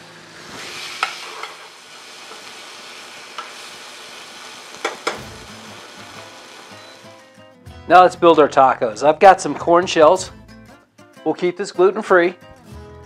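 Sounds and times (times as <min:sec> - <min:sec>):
shrimp sizzling in hot oil: 0:00.0 - 0:07.3.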